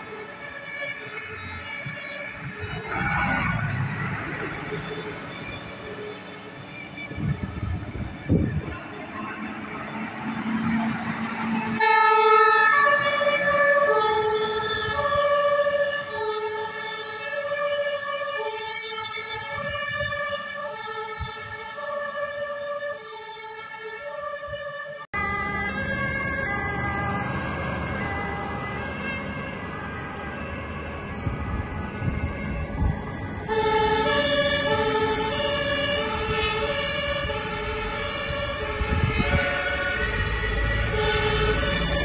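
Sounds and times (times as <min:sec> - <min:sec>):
diesel engine: 0:00.0 - 0:23.0, 0:25.1 - 0:42.0
two-tone siren: 0:00.0 - 0:42.0.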